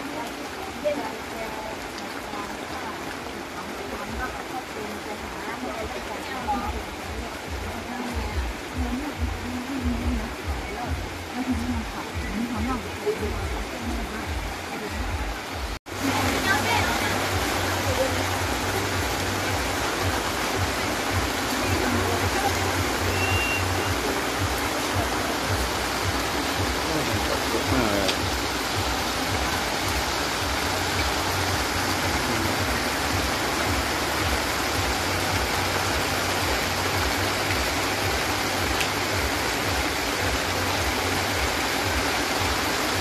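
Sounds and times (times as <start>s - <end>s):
heavy rain on street and umbrellas: 0.0s - 43.0s.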